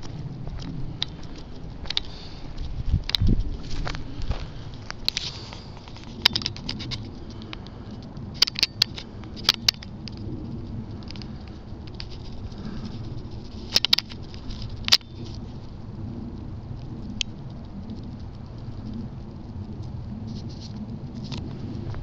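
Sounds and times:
dry grass and twigs crunching underfoot: 0.0 - 15.9, 20.3 - 22.0
steady low rumble: 0.0 - 22.0.

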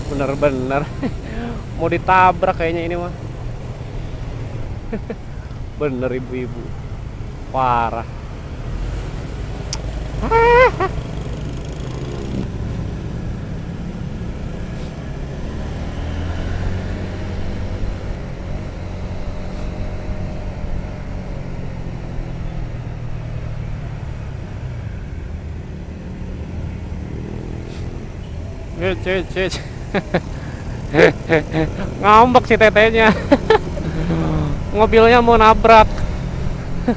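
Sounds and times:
road noise: 0.0 - 36.9
motorcycle engine: 9.2 - 25.1, 26.9 - 36.9.

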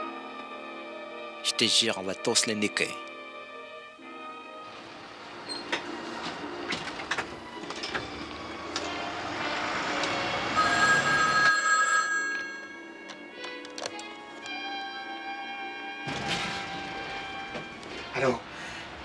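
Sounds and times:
desk telephone ringing: 10.6 - 13.2.

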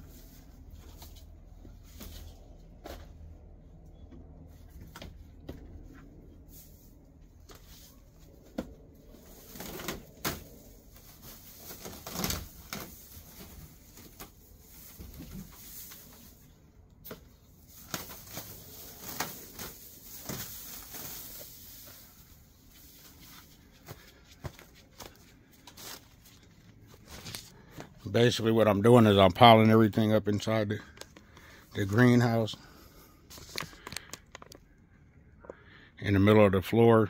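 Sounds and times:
dry grass rustling and crackling: 9.0 - 27.9.

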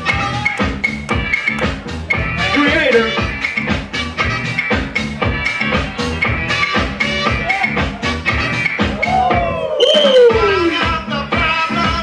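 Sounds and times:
loud dance music: 0.0 - 12.0
steady drum beat: 0.0 - 12.0.

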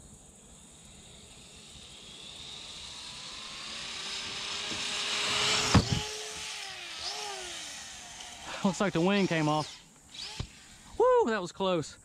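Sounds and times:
rc car motor whine: 0.0 - 11.0
rc car thumping on ramp: 3.6 - 8.4.

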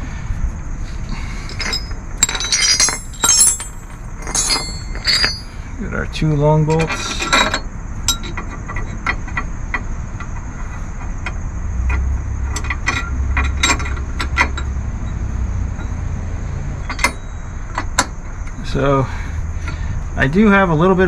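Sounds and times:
bolts clinking on metal: 1.1 - 16.0, 16.8 - 18.7.

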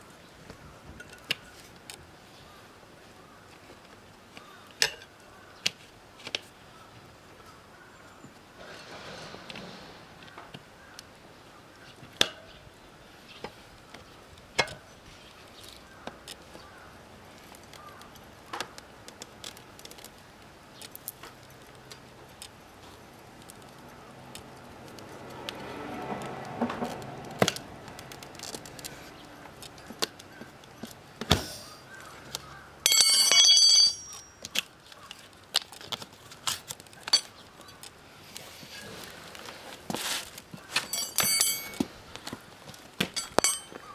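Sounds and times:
ringing metallic clatter: 31.4 - 31.9, 32.8 - 34.4, 40.6 - 41.9, 43.0 - 43.9.

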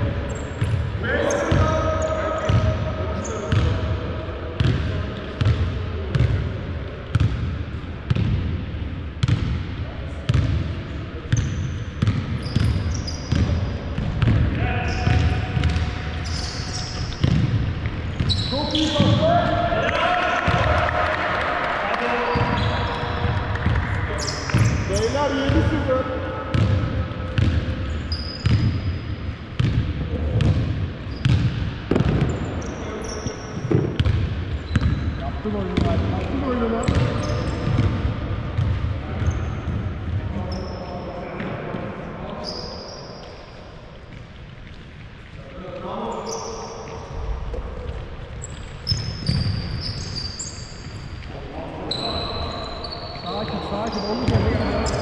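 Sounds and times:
sneaker squeaks on floor: 0.3 - 3.8, 11.3 - 19.5, 22.2 - 26.8, 27.4 - 29.8, 30.4 - 41.5, 42.3 - 44.9, 46.0 - 47.4, 48.3 - 55.0
basketball bouncing on wooden floor: 11.3 - 16.0, 17.0 - 18.4, 29.6 - 32.4, 33.6 - 35.0
basketball bouncing on hardwood: 17.1 - 18.4, 29.6 - 32.4.

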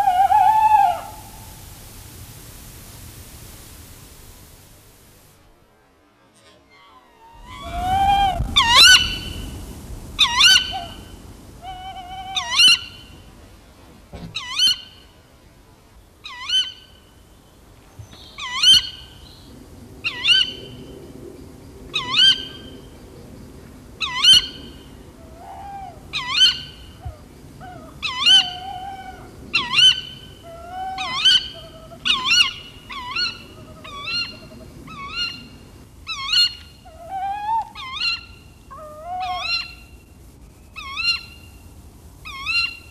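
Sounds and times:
owl alarm calls: 0.0 - 5.3, 7.2 - 13.1, 25.4 - 26.8, 27.6 - 40.0, 40.8 - 41.5, 42.2 - 42.9
short lower owl calls: 0.0 - 5.3, 7.1 - 13.2, 25.2 - 40.1, 40.7 - 41.6, 42.2 - 42.9.

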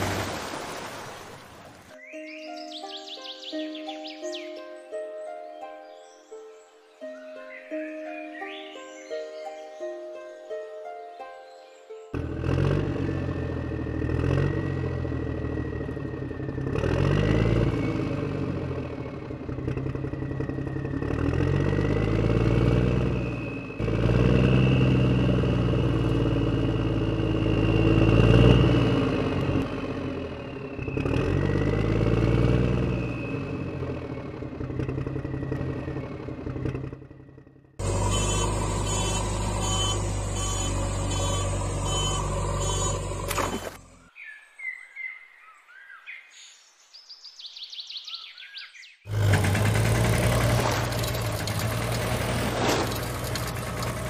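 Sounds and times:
engine running with fast rattle: 12.2 - 44.0, 49.1 - 54.0
heavy vehicle engine revving: 12.2 - 44.1, 49.1 - 54.0.

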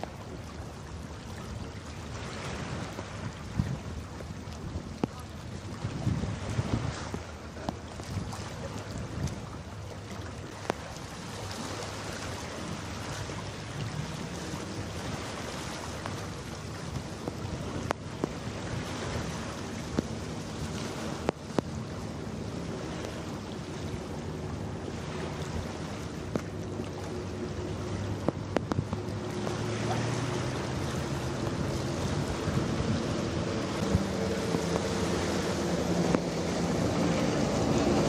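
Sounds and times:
water: 0.0 - 38.0
wind on microphone: 0.0 - 38.0
ship engines humming: 9.5 - 38.0.

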